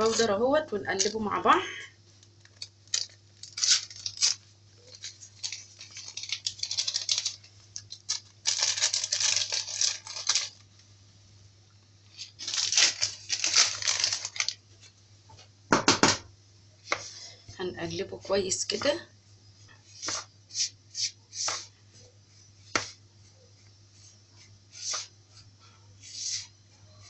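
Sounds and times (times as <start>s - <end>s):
paper packet tearing and crinkling: 2.4s - 10.6s, 12.1s - 14.6s.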